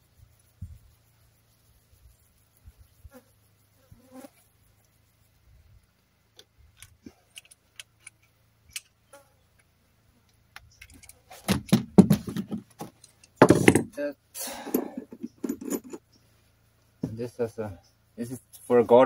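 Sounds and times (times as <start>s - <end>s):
rapid knocking and scraping: 10.8s - 14.0s, 15.0s - 16.1s
metal fittings clinking: 14.6s - 16.0s.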